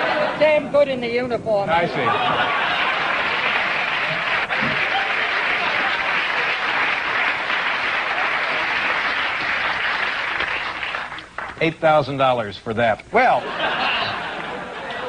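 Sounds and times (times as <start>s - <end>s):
audience applauding: 2.4s - 11.7s.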